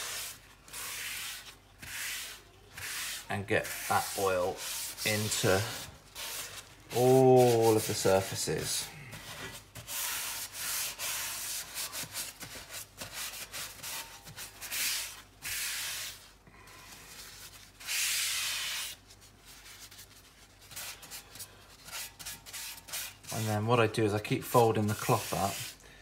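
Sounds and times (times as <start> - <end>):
paper towel wiping skillet: 0.0 - 16.3, 24.5 - 25.8.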